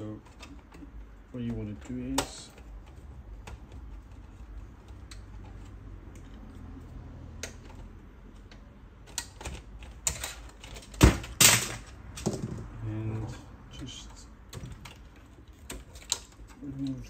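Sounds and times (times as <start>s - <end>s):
hands tapping plastic and metal: 0.0s - 6.5s, 13.9s - 17.0s.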